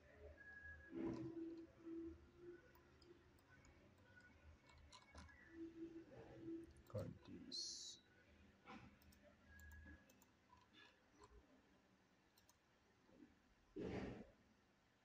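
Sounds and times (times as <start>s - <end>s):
faint computer mouse clicks: 12.3s - 12.6s.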